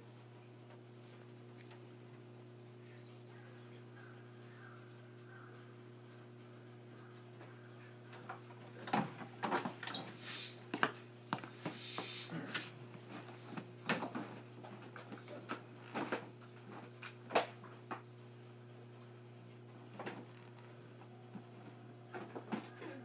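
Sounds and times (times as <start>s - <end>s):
low electrical hum: 0.0s - 23.0s
short hisses: 10.1s - 10.6s, 11.5s - 12.5s.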